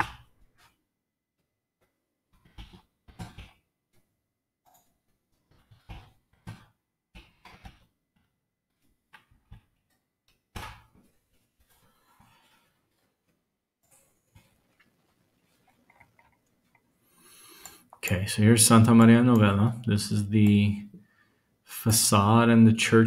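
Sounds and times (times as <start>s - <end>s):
keyboard and mouse clicks: 15.6s - 16.9s, 17.5s - 18.0s.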